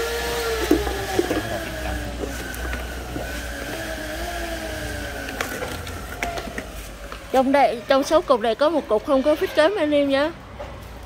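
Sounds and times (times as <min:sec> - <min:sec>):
motor engine running: 0:00.0 - 0:07.8.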